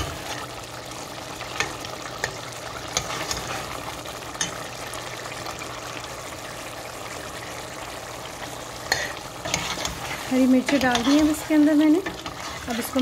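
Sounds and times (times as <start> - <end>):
stew sizzling and bubbling in a pot: 0.0 - 13.0
metal spoon stirring: 1.6 - 3.7, 8.8 - 13.0.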